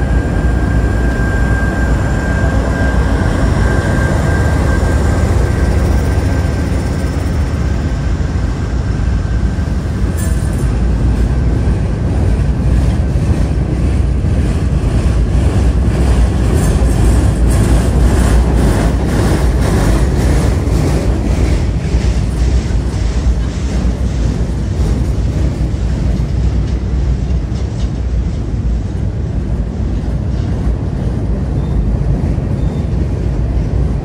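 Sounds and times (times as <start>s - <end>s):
train wheels rumbling on rail: 0.0s - 34.0s.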